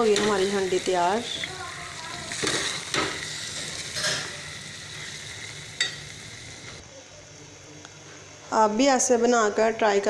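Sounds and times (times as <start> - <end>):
curry sizzling: 0.0 - 6.8.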